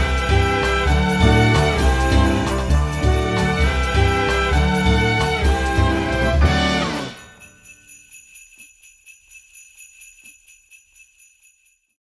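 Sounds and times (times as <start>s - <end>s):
jingle bells shaken: 0.0s - 12.0s.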